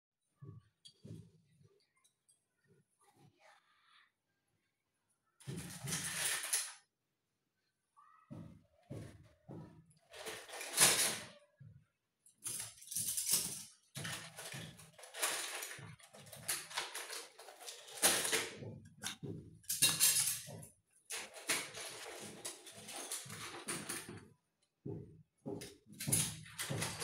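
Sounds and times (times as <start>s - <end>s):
small items handling noises: 12.4s - 24.2s.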